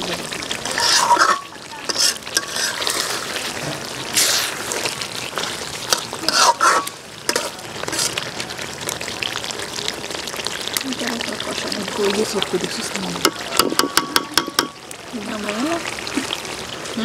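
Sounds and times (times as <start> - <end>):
meat sizzling in oil: 0.0 - 17.0
metal spatula scraping a pot: 0.5 - 8.2.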